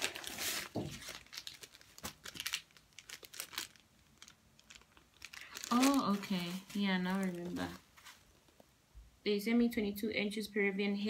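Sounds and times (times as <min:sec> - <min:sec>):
plastic packaging crinkling: 0:00.0 - 0:08.5.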